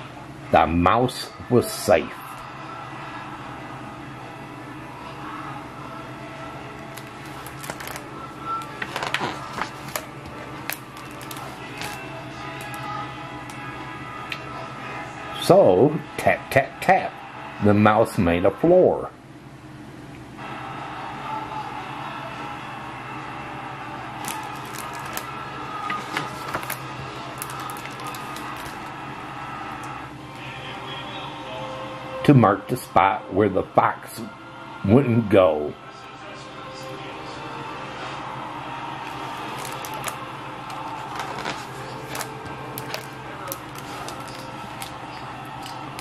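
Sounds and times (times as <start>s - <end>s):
paper page crackling: 6.8s - 13.0s, 24.2s - 28.9s, 39.0s - 46.0s.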